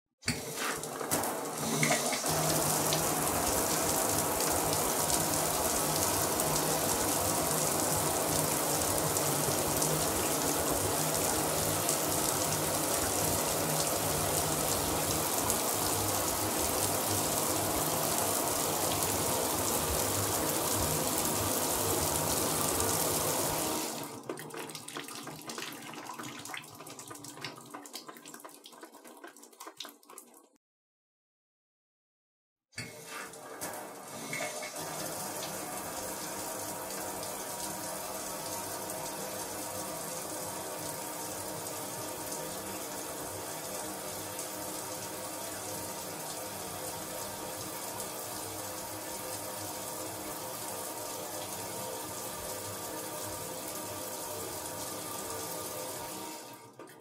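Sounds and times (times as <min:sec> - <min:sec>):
water dripping and trickling: 0:00.6 - 0:30.5.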